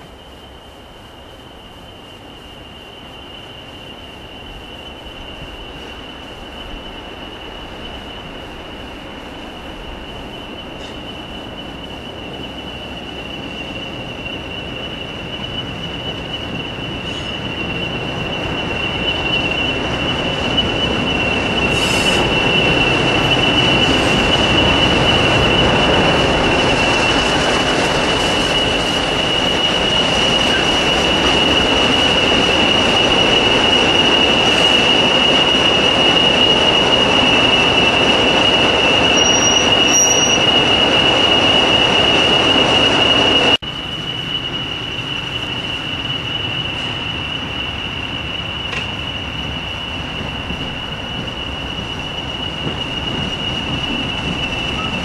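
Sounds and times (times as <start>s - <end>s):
diesel locomotive passing: 0.0s - 55.0s
turbocharger whistle: 29.2s - 42.3s.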